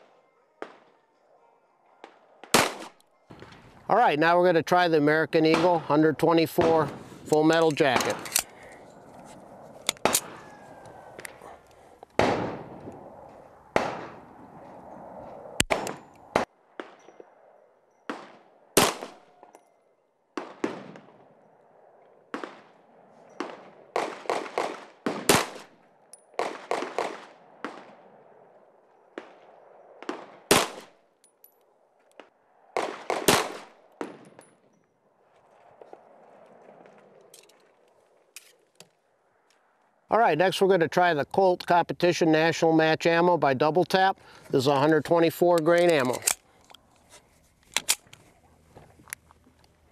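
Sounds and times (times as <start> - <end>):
pistol shots: 2.0 - 3.6, 5.4 - 5.9, 12.2 - 12.8, 13.7 - 14.2, 15.6 - 17.1, 18.1 - 19.5, 20.4 - 21.2, 23.4 - 25.8, 26.4 - 28.0, 30.0 - 31.0, 32.8 - 34.4.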